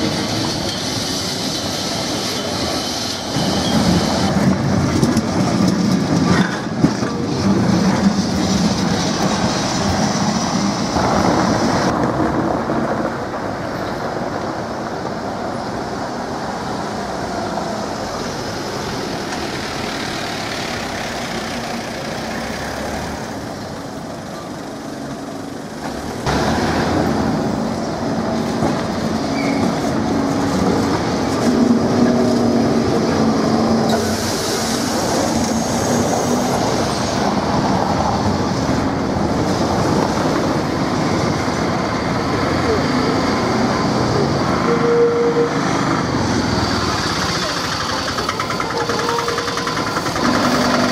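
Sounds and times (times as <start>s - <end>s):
tram wheels clattering on rails: 0.0s - 50.9s
tram motor hum: 17.4s - 50.9s.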